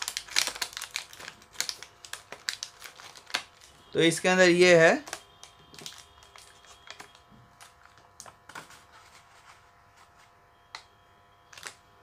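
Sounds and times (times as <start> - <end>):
plastic blister tray crackling: 0.0 - 8.7
faint steady hum: 0.0 - 12.0.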